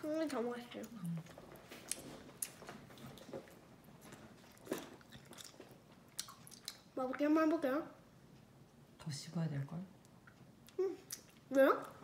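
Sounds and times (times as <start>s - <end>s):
child chewing gum: 0.7s - 7.0s, 10.1s - 12.0s.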